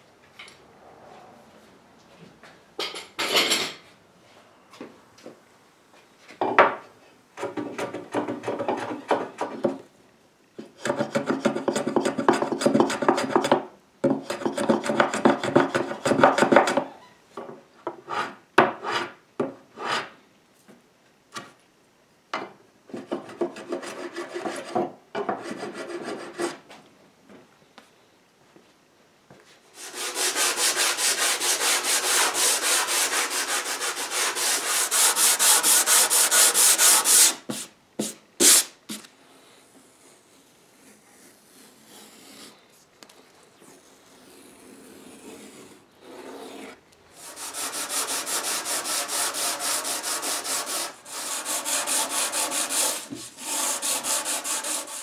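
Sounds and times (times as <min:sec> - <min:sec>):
hand tool scraping wood: 0:29.8 - 0:39.1, 0:46.0 - 0:55.0.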